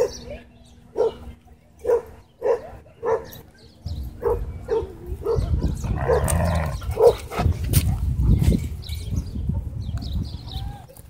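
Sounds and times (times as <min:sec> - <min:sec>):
dog barking: 0:00.9 - 0:03.4, 0:04.2 - 0:06.3, 0:07.0 - 0:07.2.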